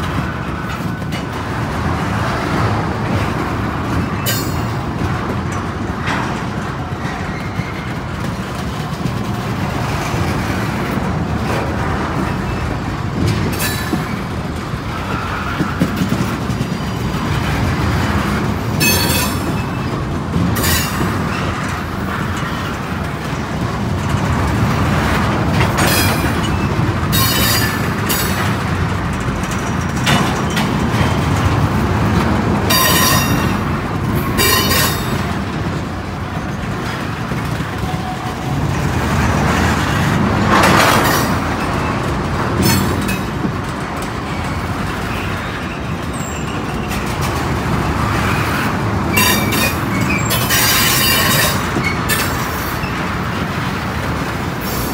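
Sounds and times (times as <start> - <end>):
train wheels rumbling on rails: 0.0 - 54.9
high wheel squeals: 7.0 - 8.1, 32.7 - 33.6, 44.3 - 47.0, 49.1 - 53.1.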